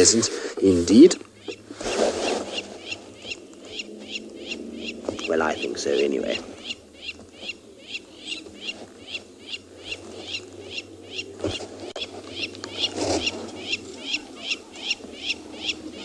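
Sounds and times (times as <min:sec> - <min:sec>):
bird chirping: 0:00.0 - 0:16.0.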